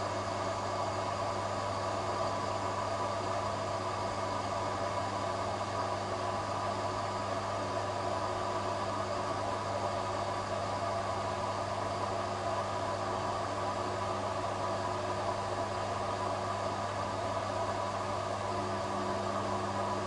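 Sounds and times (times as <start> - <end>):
steady machine hum: 0.0 - 20.0.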